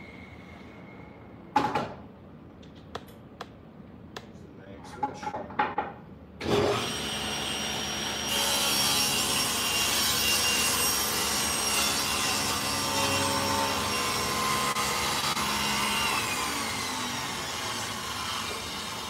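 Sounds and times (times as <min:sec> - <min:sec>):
table saw cutting wood: 0:06.4 - 0:19.0.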